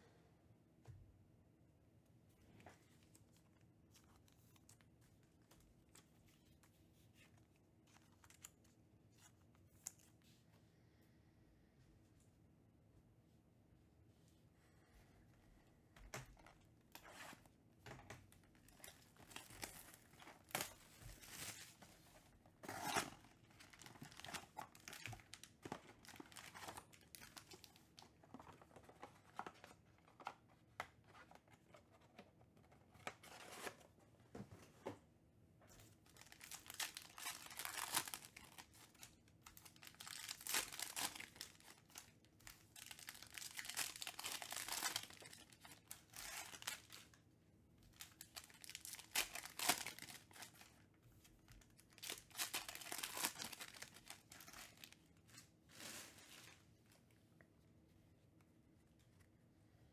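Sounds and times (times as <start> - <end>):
foil wrappers crinkling: 36.1 - 47.1, 47.9 - 50.7, 51.8 - 55.0.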